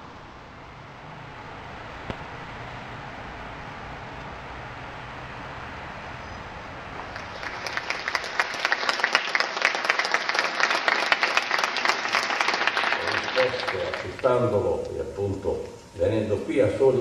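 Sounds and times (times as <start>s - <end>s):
low background noise: 0.0s - 17.0s
audience applause: 6.9s - 14.8s.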